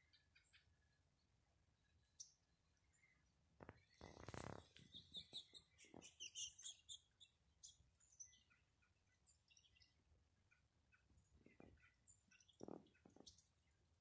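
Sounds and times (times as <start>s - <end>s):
small birds chirping: 0.0s - 14.0s
rustling crackle: 3.6s - 5.0s.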